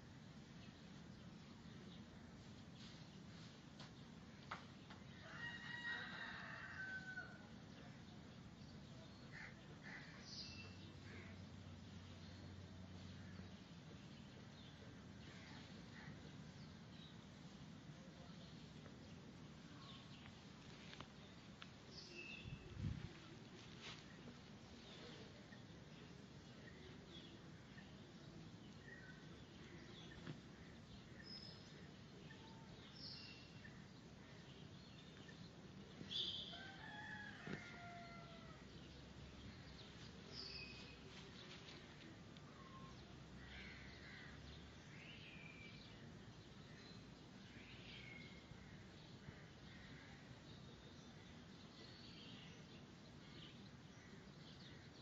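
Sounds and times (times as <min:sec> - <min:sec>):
faint bird chirps: 0:42.4 - 0:44.4.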